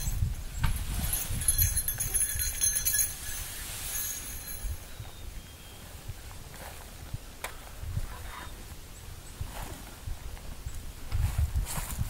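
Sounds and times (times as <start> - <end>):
footsteps crunching in snow: 11.1 - 12.0.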